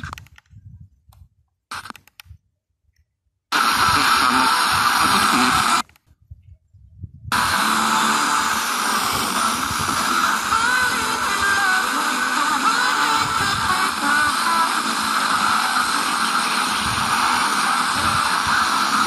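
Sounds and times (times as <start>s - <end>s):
radio static hiss: 1.7s - 2.0s, 3.5s - 6.0s, 7.3s - 19.0s.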